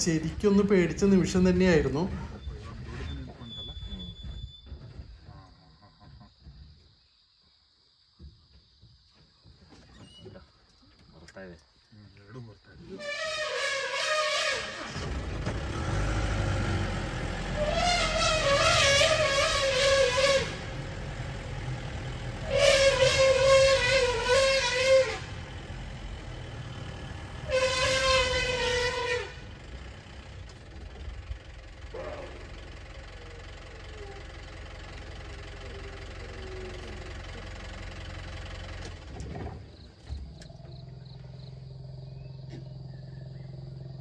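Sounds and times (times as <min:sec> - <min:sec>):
vehicle engine idling: 0:00.0 - 0:06.9, 0:13.9 - 0:44.0
elephant trumpeting: 0:13.0 - 0:15.2, 0:17.4 - 0:25.6, 0:27.3 - 0:29.6, 0:31.9 - 0:32.6.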